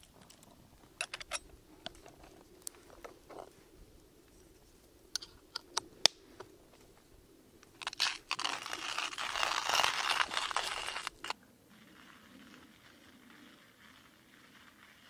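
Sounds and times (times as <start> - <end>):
coffee beans being ground: 7.8 - 15.0.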